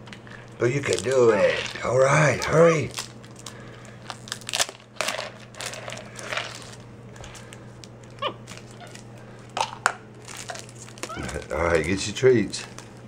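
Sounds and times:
plastic toy rattling and crinkling: 0:02.4 - 0:07.5, 0:09.6 - 0:13.0
monkey squeak: 0:11.1 - 0:11.4.

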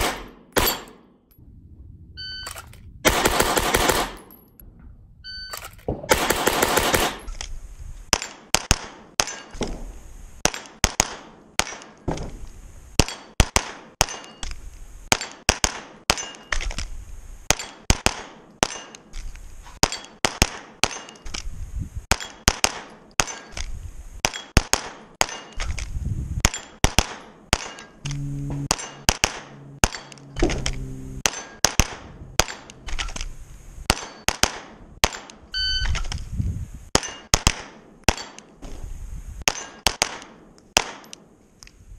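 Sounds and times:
pistol shots: 0:00.0 - 0:01.1, 0:03.1 - 0:04.4, 0:05.9 - 0:07.3, 0:17.5 - 0:18.9, 0:22.1 - 0:23.5, 0:24.2 - 0:25.6, 0:26.4 - 0:27.9, 0:28.7 - 0:30.1, 0:31.2 - 0:33.1, 0:33.9 - 0:35.4, 0:39.4 - 0:41.2.

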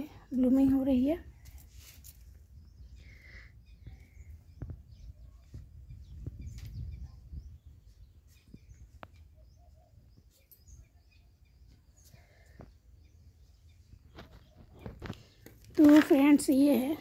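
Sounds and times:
faint bird chirps: 0:02.4 - 0:15.6.

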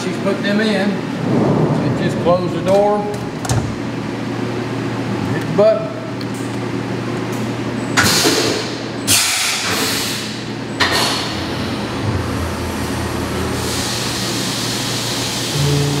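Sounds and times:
machine hum: 0:00.0 - 0:16.0
coolant spraying hiss: 0:13.5 - 0:16.0.

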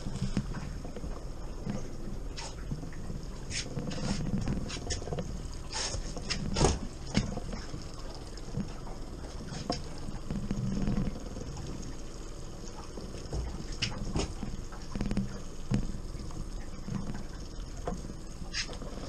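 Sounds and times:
boat motor humming: 0:00.0 - 0:19.0
water against hull: 0:00.0 - 0:19.0.

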